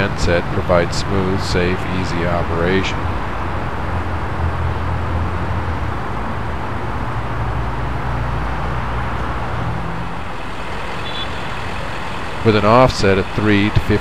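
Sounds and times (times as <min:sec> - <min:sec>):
machinery engine drone: 0:00.0 - 0:14.0
constant hiss: 0:09.1 - 0:14.0.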